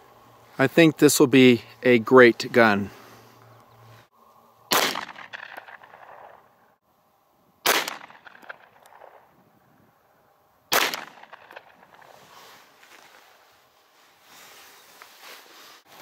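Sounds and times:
pistol shots with echo: 0:04.7 - 0:06.4, 0:07.6 - 0:09.2, 0:10.7 - 0:12.0.

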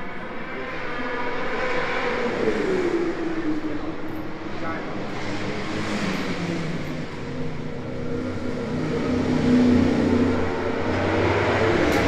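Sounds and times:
motorcycle engine revving: 0:05.1 - 0:12.0.

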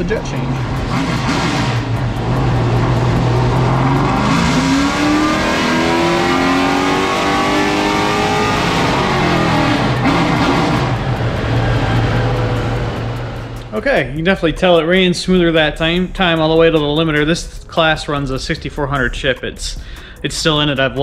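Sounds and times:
race car engine revving: 0:00.0 - 0:14.8.

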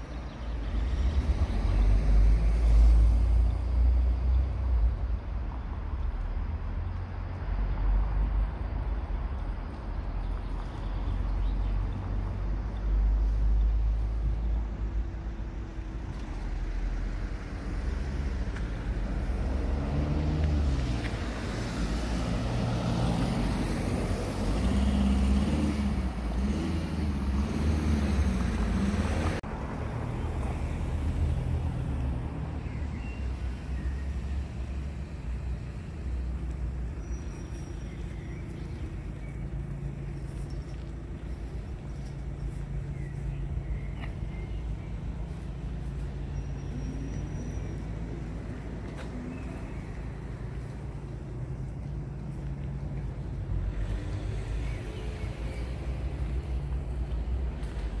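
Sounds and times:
low rumble of road traffic: 0:00.0 - 0:58.0
car driving past: 0:16.6 - 0:37.2.

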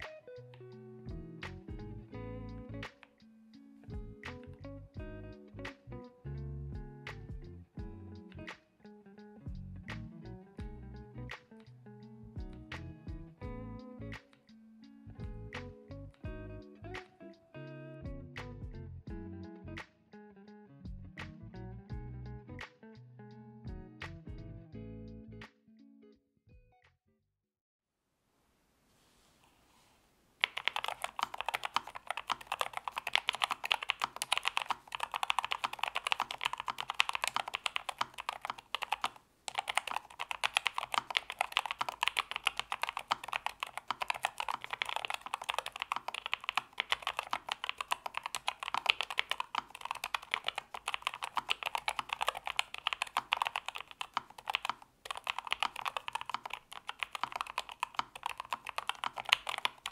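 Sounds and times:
mechanical keyboard typing: 0:30.4 - 0:59.9.

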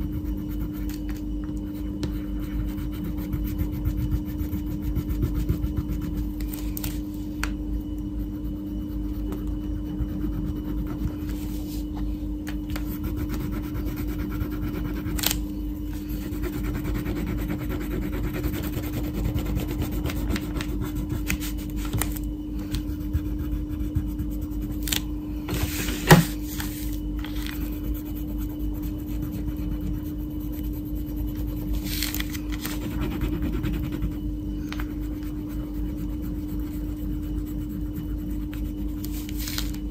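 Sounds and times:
low hum: 0:00.0 - 0:39.9
crayon scratching on paper: 0:02.1 - 0:06.6, 0:08.3 - 0:11.8, 0:12.8 - 0:15.4, 0:16.0 - 0:21.8, 0:22.9 - 0:24.9, 0:26.6 - 0:34.2, 0:34.8 - 0:39.5.

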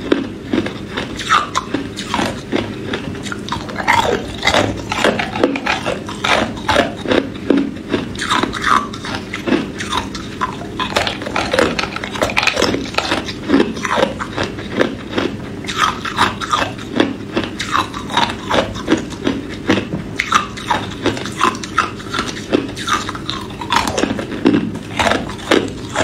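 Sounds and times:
ice cubes crunched between teeth: 0:00.1 - 0:26.0.

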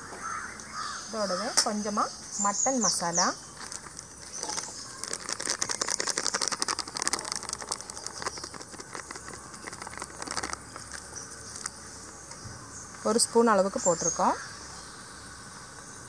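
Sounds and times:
plastic sachet crinkling: 0:03.6 - 0:11.8.

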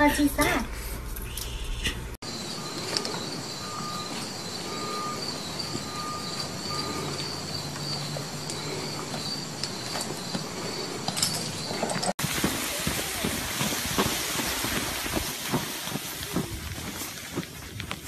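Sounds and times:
short electronic beeps: 0:02.5 - 0:07.3.

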